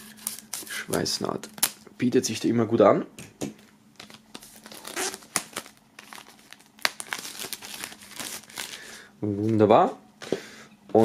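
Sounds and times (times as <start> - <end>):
plastic tearing: 4.0 - 8.8
plastic film crinkling: 4.0 - 9.0.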